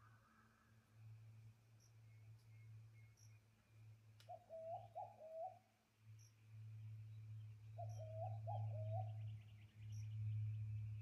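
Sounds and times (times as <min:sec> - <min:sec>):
faint high bird chirps: 0:00.0 - 0:06.4, 0:07.0 - 0:11.0
steady low hum: 0:05.6 - 0:11.0.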